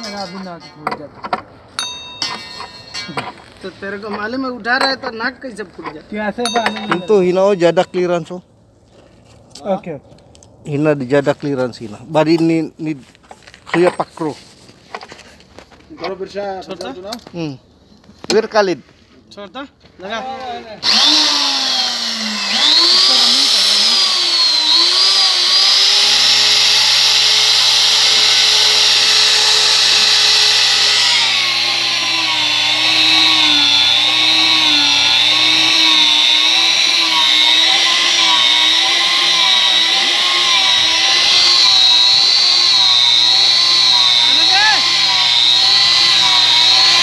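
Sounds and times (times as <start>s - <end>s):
electric motor whining: 20.8s - 47.0s.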